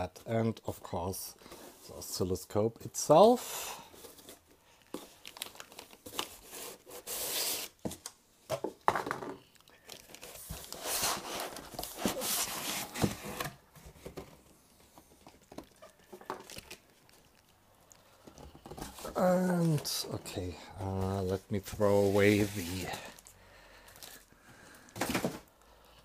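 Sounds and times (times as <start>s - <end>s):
plastic bag crinkling: 4.8s - 6.4s, 15.2s - 18.0s.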